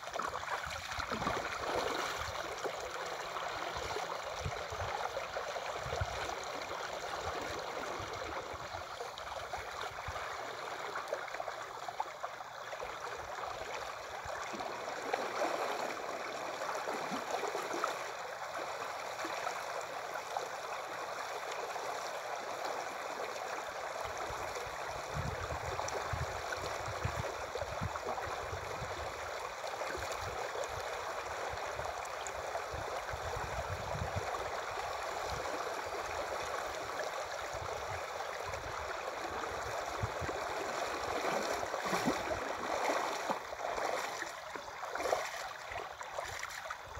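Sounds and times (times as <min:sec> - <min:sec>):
river water rushing: 0:34.4 - 0:46.9.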